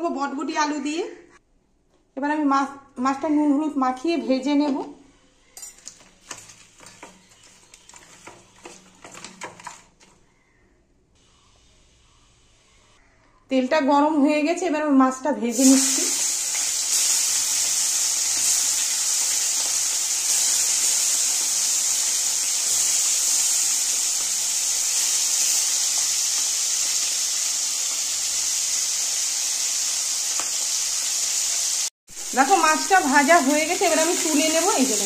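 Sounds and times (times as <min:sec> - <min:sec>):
fish frying in hot oil: 0:15.5 - 0:35.0.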